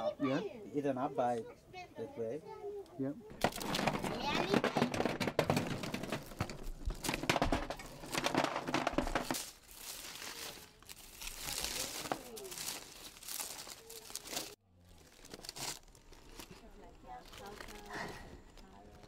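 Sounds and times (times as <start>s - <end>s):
stones clacking: 3.3s - 9.6s
dry leaves rustling: 5.9s - 19.0s.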